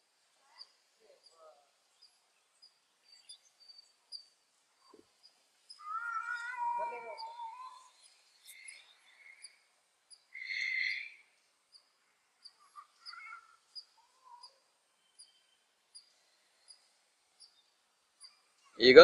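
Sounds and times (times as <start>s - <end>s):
high bird chirp: 5.7s - 11.3s, 12.4s - 17.6s
loud noisy bird call: 5.8s - 9.6s, 10.3s - 11.4s, 12.5s - 14.5s.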